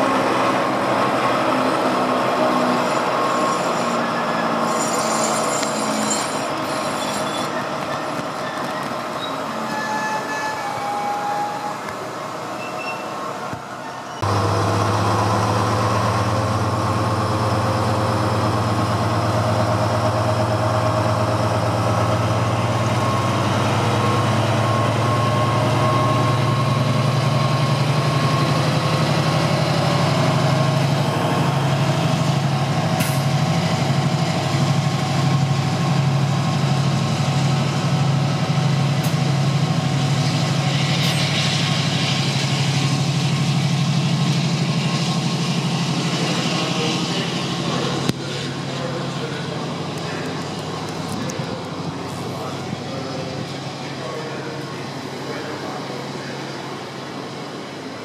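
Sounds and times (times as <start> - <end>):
diesel locomotive engine drone: 0.0 - 58.0
hiss: 40.1 - 48.7.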